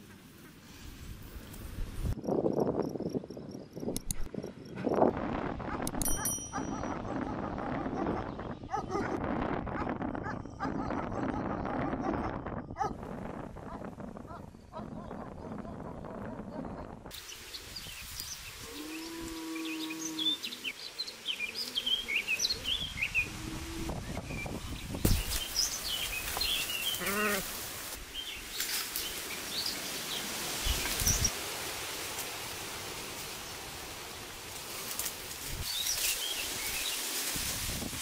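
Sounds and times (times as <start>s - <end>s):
small birds chirping: 14.3s - 31.3s, 35.6s - 37.2s
rustling ferns and undergrowth: 17.1s - 38.0s.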